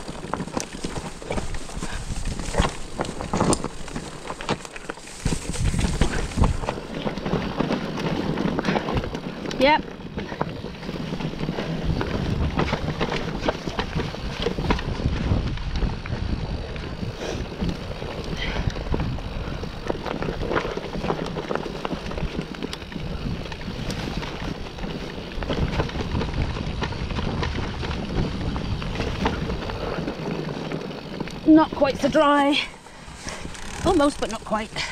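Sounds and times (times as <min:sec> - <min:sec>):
bike knocks and rattles: 0:00.0 - 0:16.7
wind on microphone: 0:00.0 - 0:21.2, 0:22.2 - 0:32.2
tyres rumbling over dirt: 0:00.0 - 0:34.9.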